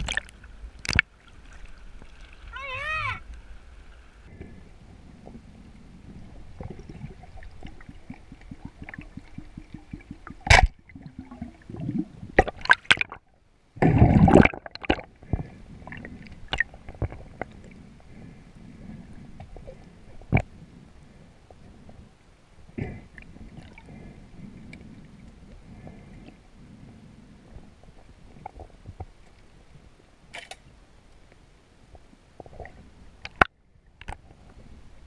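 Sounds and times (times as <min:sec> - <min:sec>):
water sloshing and gurgling: 0:00.0 - 0:29.9, 0:32.0 - 0:35.0.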